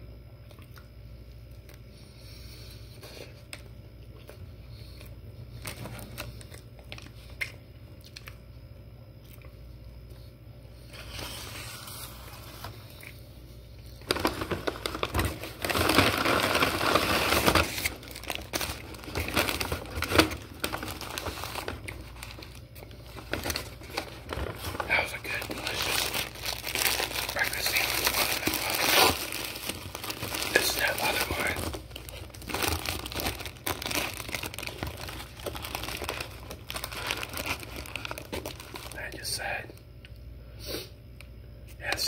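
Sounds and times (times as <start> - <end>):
quiet chewing: 0.4 - 2.0, 6.2 - 8.5, 9.1 - 10.3
paper bag crinkling and rustling: 14.0 - 39.3.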